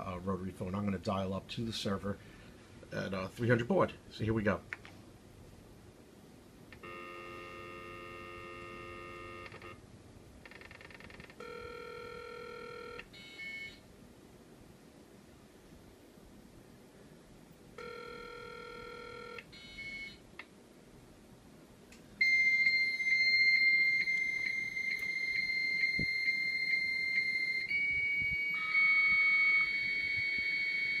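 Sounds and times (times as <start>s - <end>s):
beeps on phone line: 6.8s - 9.8s, 11.4s - 13.8s, 17.8s - 20.2s, 22.2s - 31.0s
dial-up modem tones: 6.8s - 9.8s, 11.4s - 13.8s, 22.2s - 31.0s
high modem answer tone: 6.8s - 9.8s
lower modem carrier tone: 6.8s - 9.8s, 10.6s - 13.8s, 17.8s - 20.2s, 22.2s - 31.0s.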